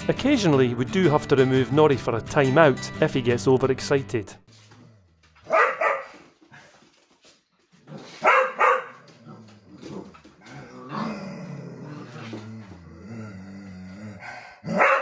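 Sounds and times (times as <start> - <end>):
dog barking: 5.4 - 6.2, 8.2 - 9.0, 14.7 - 15.0
dog growling: 8.9 - 15.0.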